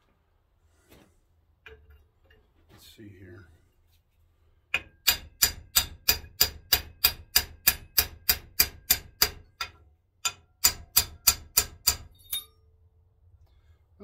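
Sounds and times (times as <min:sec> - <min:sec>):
hammer striking metal: 0:04.7 - 0:12.6.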